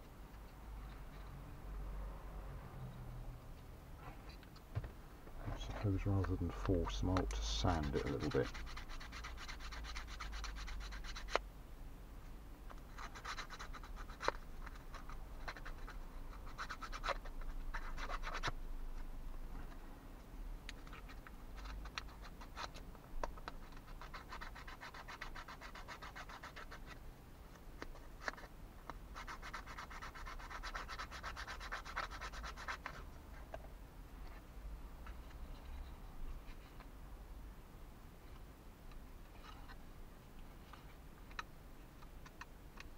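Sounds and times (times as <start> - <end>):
sanding stick scratching wood: 6.1 - 11.4, 23.7 - 26.8, 29.2 - 33.0.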